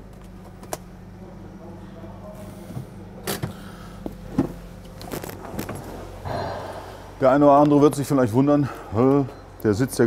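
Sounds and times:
car engine idling: 0.0 - 10.0
knocks and clicks in car: 4.3 - 4.6.

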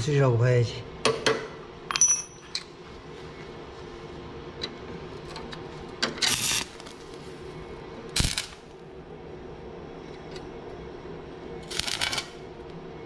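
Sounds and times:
faint steady hum: 0.0 - 13.0
metallic clinks: 1.9 - 2.6
welding arc crackling hiss: 6.2 - 8.8, 11.6 - 12.7.

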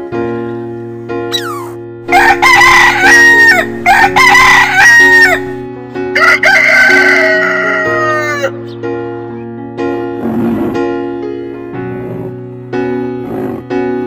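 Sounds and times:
gentle piano music: 0.0 - 14.0
rooster crowing: 2.1 - 5.6, 6.2 - 8.6.

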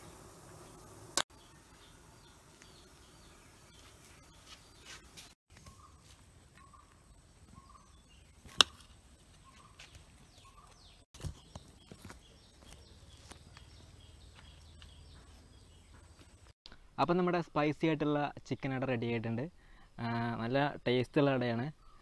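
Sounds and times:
bird calling: 1.4 - 16.5.

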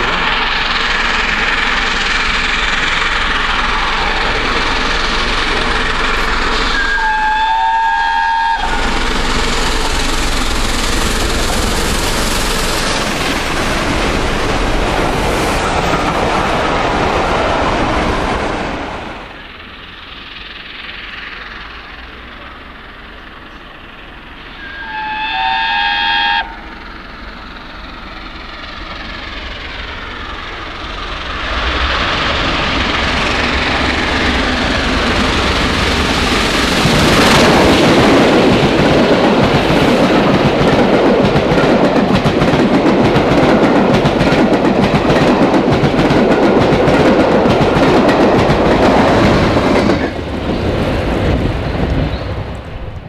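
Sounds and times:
train wheels clickety-clack: 0.0 - 25.0, 26.4 - 53.0
steam locomotive exhaust: 0.0 - 53.0
steam whistle blast: 6.7 - 8.9, 24.5 - 26.6.

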